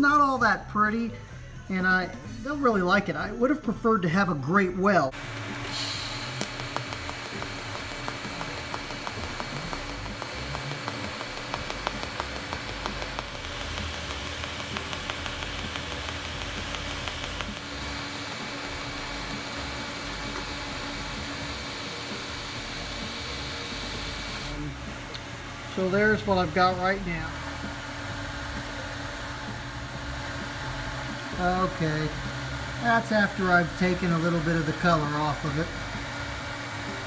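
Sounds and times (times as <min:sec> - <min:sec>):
welding arc hissing and crackling: 0:05.2 - 0:24.6.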